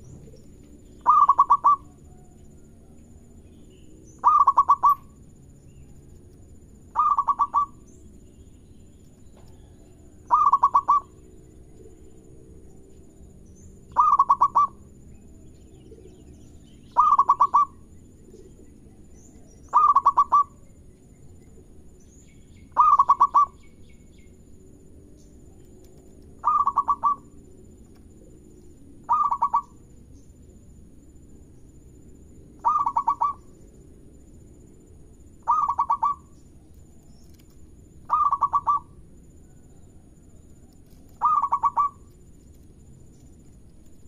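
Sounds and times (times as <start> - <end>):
dove cooing: 0.0 - 2.7, 4.2 - 5.2, 6.9 - 7.9, 9.6 - 12.2, 13.9 - 14.8, 16.9 - 20.6, 22.7 - 23.7, 25.6 - 29.8, 32.6 - 33.6, 35.4 - 36.3, 37.4 - 39.0, 40.9 - 42.2.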